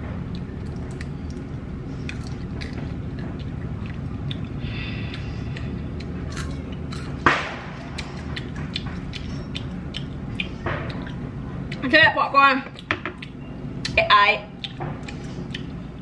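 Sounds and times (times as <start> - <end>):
steady low hum: 0.0 - 16.0
chewing popcorn crunches: 0.3 - 11.8.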